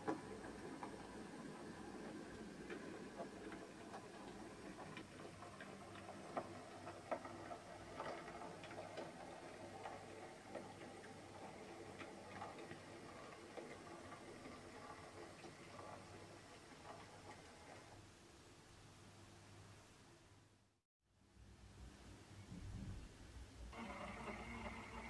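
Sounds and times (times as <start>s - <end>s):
model train wheels clicking: 0.0s - 18.0s.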